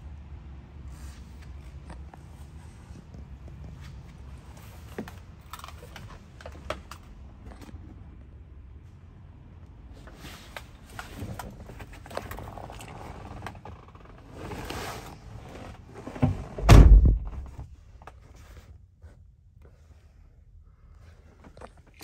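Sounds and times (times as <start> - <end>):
heavy low thump: 16.5 - 17.7.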